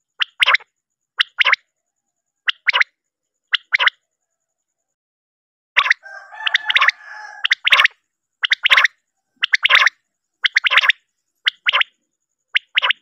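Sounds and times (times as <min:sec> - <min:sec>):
quail calling: 0:02.4 - 0:02.9, 0:05.8 - 0:11.9, 0:12.5 - 0:13.0
low drawn-out bird call: 0:06.0 - 0:09.9.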